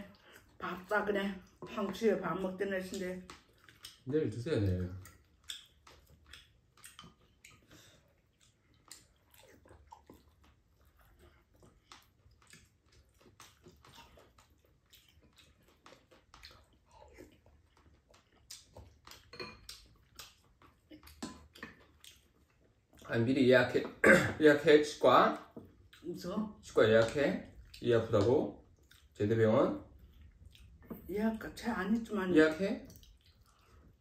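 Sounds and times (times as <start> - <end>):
quiet chewing: 0.0 - 24.1, 25.2 - 34.0.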